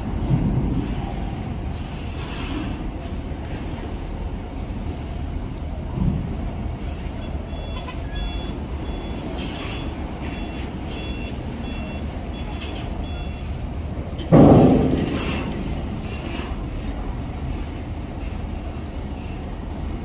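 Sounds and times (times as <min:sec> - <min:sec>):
truck engines rumbling: 0:00.0 - 0:20.0
reversing alarm beeping: 0:06.9 - 0:14.0.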